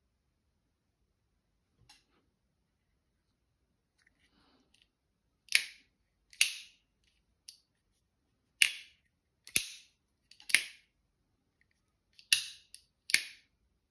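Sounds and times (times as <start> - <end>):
folding knife snapping open and closed: 5.5 - 6.8, 8.6 - 10.8, 12.2 - 13.4.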